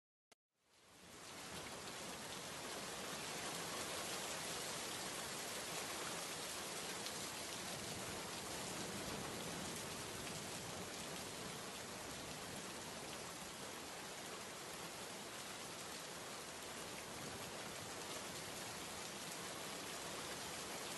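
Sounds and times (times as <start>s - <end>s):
rain on wet pavement: 0.7s - 20.9s.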